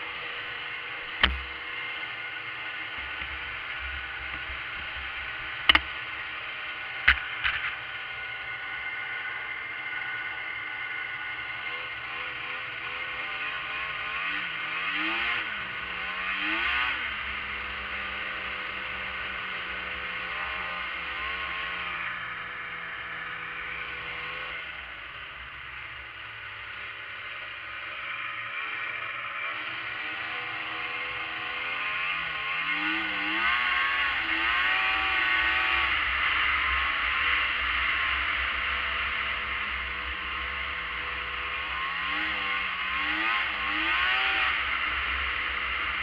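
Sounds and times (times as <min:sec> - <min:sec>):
two-stroke engine revving: 0:08.3 - 0:24.8, 0:27.0 - 0:46.0.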